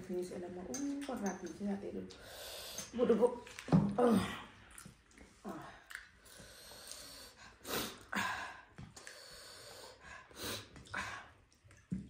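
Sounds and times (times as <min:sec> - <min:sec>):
sharp breaths and sniffs: 0:08.9 - 0:11.0.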